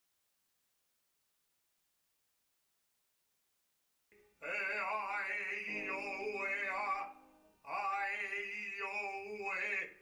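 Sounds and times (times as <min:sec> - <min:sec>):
man singing opera: 0:04.4 - 0:10.0.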